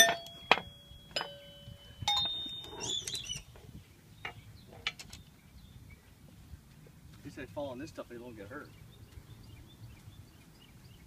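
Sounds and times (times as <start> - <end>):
metal xylophone strikes: 0.0 - 2.9.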